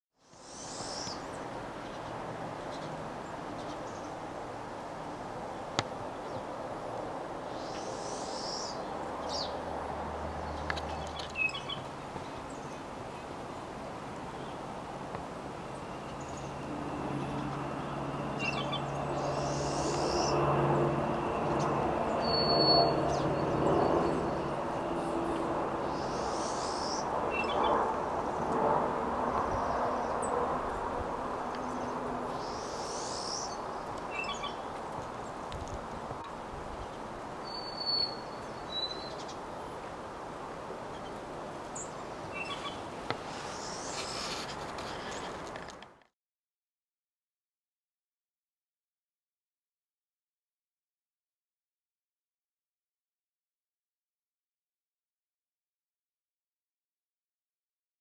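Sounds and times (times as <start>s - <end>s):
outdoor background noise: 0.1s - 46.1s
birds chirping: 10.2s - 13.4s, 15.7s - 20.6s, 21.2s - 27.8s, 31.6s - 35.4s, 36.3s - 39.5s, 40.9s - 44.3s.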